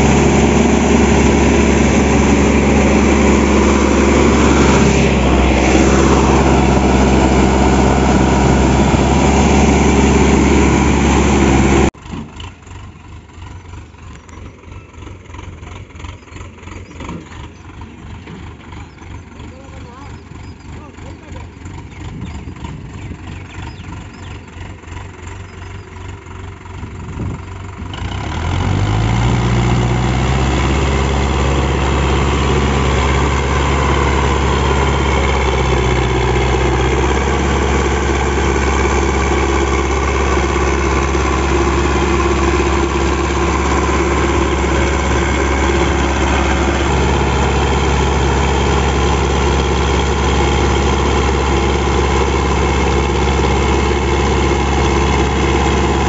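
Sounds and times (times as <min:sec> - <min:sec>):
tractor diesel engine revving: 0:00.0 - 0:56.0.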